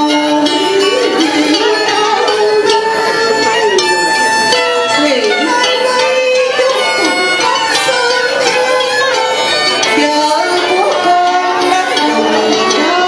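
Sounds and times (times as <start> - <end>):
traditional instrumental accompaniment: 0.0 - 13.0
singing with wavering pitch: 10.0 - 13.0.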